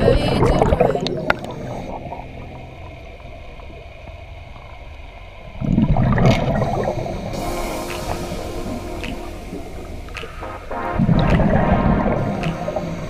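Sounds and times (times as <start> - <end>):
underwater air bubbling: 0.0 - 13.0
underwater hiss: 6.0 - 13.0.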